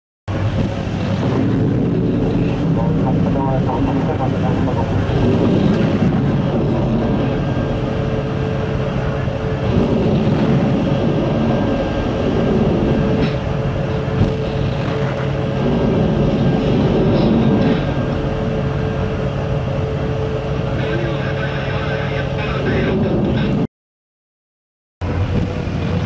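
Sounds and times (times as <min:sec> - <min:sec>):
missile launch rumbling: 0:00.3 - 0:18.6
machinery hum: 0:00.3 - 0:23.7, 0:25.0 - 0:26.0.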